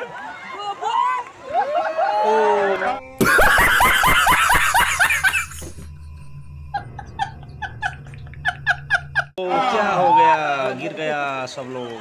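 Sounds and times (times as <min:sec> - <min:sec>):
man cackling with laughter: 0:03.2 - 0:05.8.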